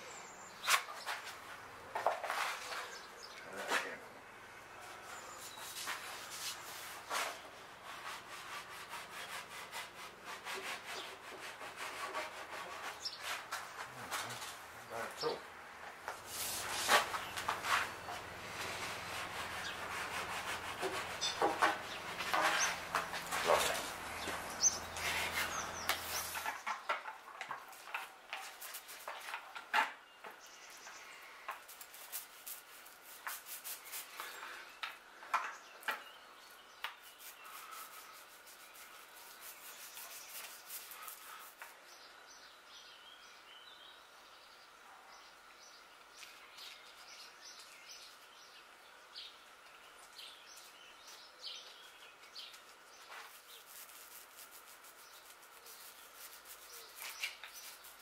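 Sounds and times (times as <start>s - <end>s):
small birds chirping: 0.0s - 9.4s, 12.6s - 58.0s
scraping and rubbing on wood: 0.6s - 4.0s, 5.4s - 14.6s, 16.1s - 30.4s, 31.5s - 36.1s, 36.8s - 41.8s, 53.0s - 58.0s.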